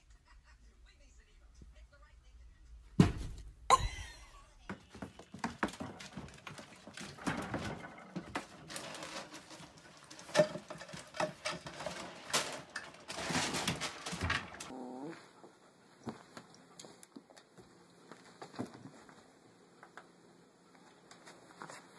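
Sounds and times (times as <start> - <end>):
dog claws scratching plastic: 4.9 - 14.7
rustling: 4.9 - 19.4.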